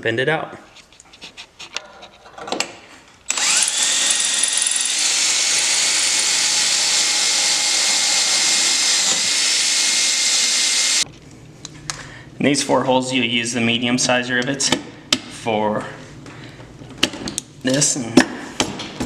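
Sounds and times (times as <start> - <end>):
power drill whining: 3.3 - 11.0.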